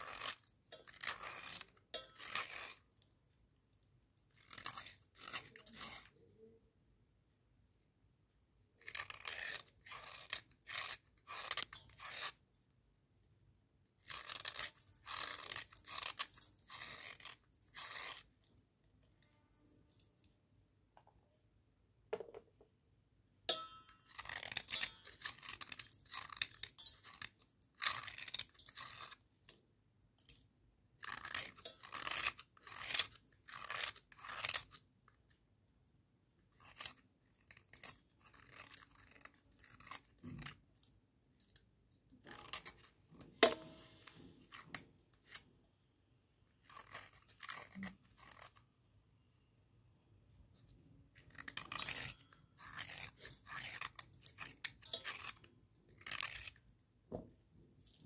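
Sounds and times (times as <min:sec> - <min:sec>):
blade scraping slate: 0:00.0 - 0:02.9, 0:04.4 - 0:06.6, 0:08.8 - 0:12.4, 0:14.0 - 0:18.4, 0:23.5 - 0:29.2, 0:31.0 - 0:34.8, 0:36.5 - 0:40.6, 0:42.2 - 0:45.5, 0:46.6 - 0:48.6, 0:51.2 - 0:56.6.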